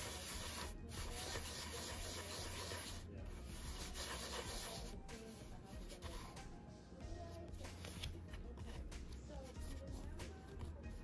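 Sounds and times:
dough rubbing on wooden board: 0.0 - 6.5.

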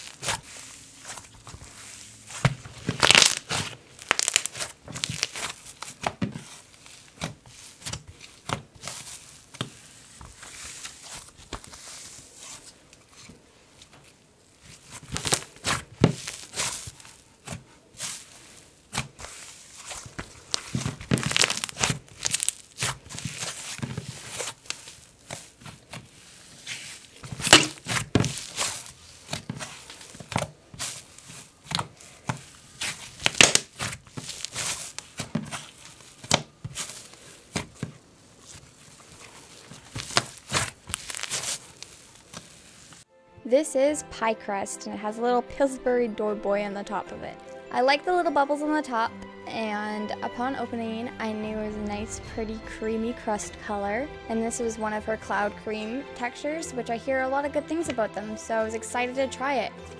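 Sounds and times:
hands squishing slime: 0.0 - 43.0.

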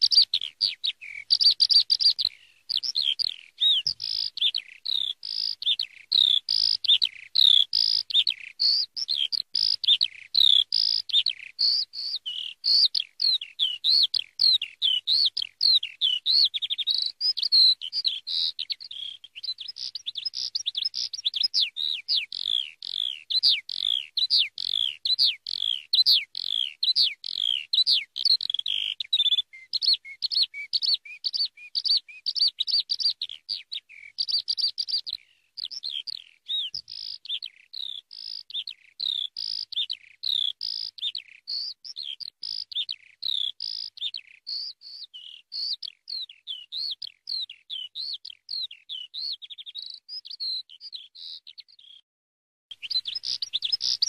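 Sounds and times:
skylark singing: 0.0 - 52.0, 52.7 - 54.0.

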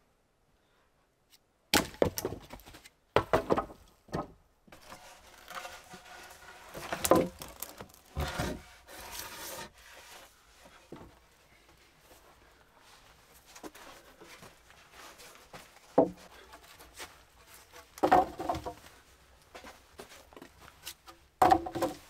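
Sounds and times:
wooden poles knocking: 3.2 - 4.4, 6.8 - 8.6, 15.9 - 16.3, 18.0 - 18.8, 21.4 - 22.0
wood scraping on wood: 4.7 - 11.2, 13.6 - 22.0.

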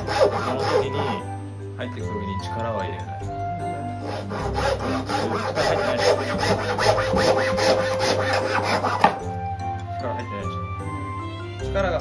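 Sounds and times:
hand saw cutting wood: 0.0 - 1.2, 3.9 - 9.3.

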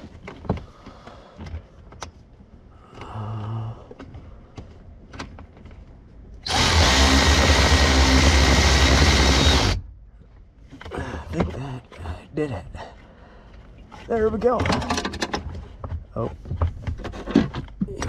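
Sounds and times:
power driver running: 6.4 - 9.8.

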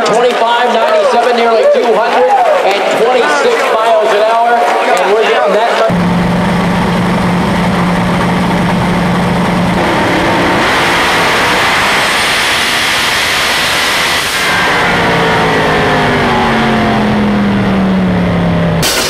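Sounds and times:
race car engine at full throttle: 5.8 - 19.0.

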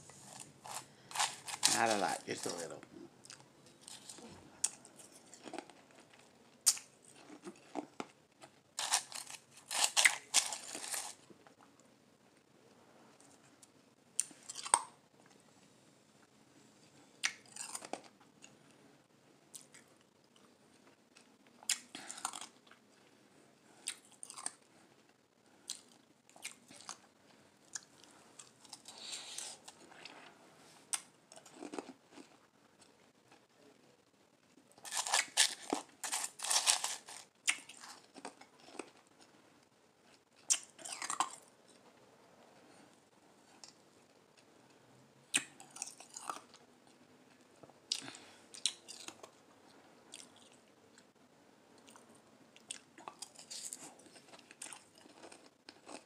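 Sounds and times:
person chewing crushed ice: 0.2 - 11.3, 14.2 - 15.0, 17.2 - 18.5, 19.5 - 23.0, 23.8 - 24.7, 30.9 - 32.5, 34.8 - 39.3, 40.0 - 41.8, 45.3 - 46.6, 47.3 - 49.4, 52.6 - 56.0.

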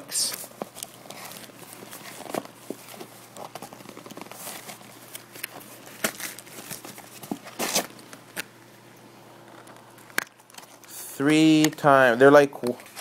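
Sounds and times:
plastic and cardboard packaging rustling: 0.2 - 8.4, 12.8 - 13.0.

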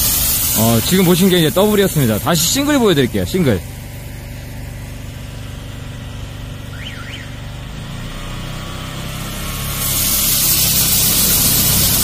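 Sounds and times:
loud water jet hiss: 0.0 - 5.1, 8.8 - 12.0
drain jetter engine droning: 0.0 - 12.0.

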